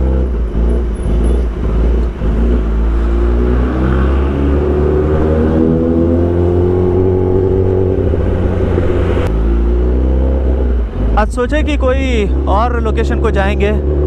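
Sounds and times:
motorcycle engine accelerating: 0:00.0 - 0:11.2
wind rumbling on microphone: 0:01.0 - 0:09.3.

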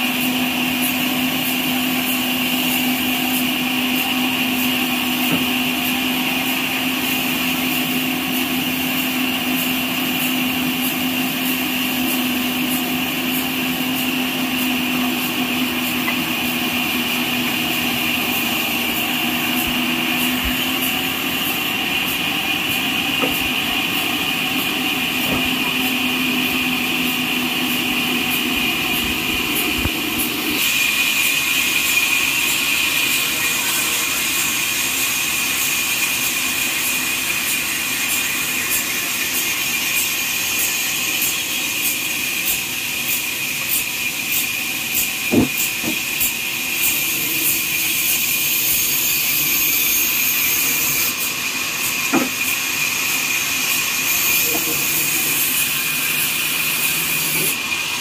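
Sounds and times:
sawmill whining through log: 0:00.0 - 0:58.0
wood and trolley knocks: 0:45.3 - 0:46.0.

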